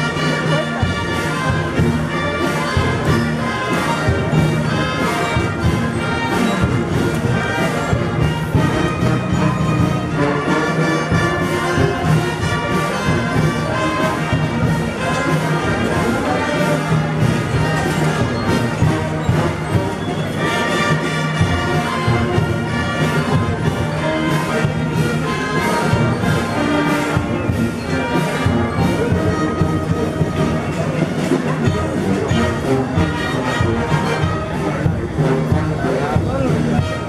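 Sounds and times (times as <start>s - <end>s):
brass band playing a march: 0.0s - 37.0s.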